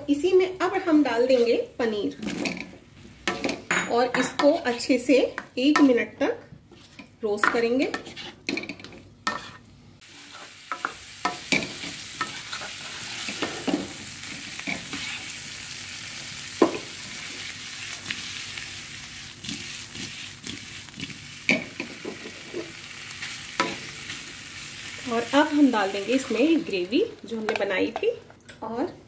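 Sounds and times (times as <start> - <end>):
cheese sizzling in butter: 10.0 - 27.5.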